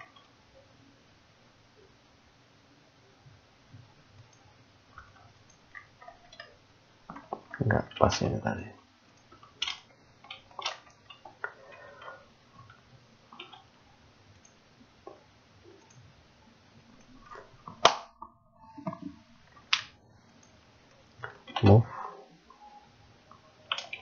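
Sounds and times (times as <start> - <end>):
computer mouse clicking: 4.2 - 7.2, 9.1 - 13.7, 14.3 - 16.1, 23.7 - 24.0.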